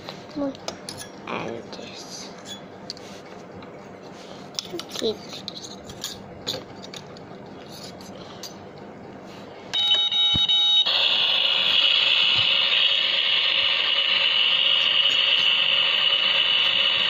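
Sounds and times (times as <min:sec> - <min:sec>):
steady electronic beep: 0:09.8 - 0:11.1.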